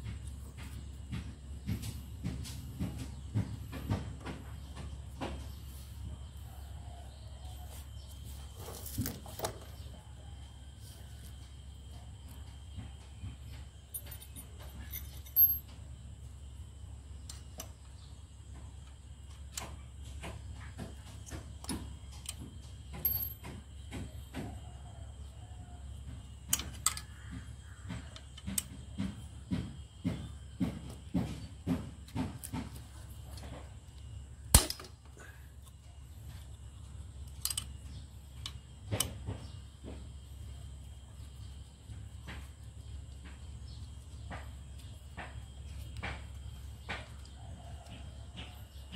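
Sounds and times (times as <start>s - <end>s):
steady low hum: 0.0s - 48.9s
light metallic clicks and clinks: 13.9s - 15.8s, 22.2s - 23.5s.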